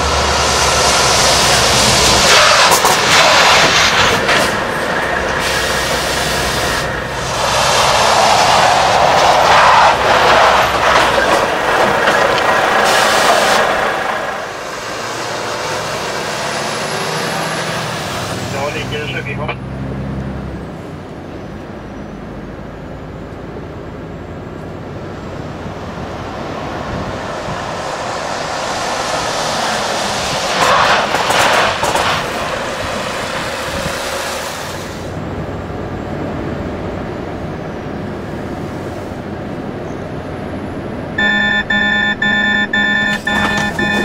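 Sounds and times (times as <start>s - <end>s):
truck passing on wet road: 0.0s - 21.0s, 21.6s - 41.1s
rapid electronic beeping: 41.2s - 44.0s.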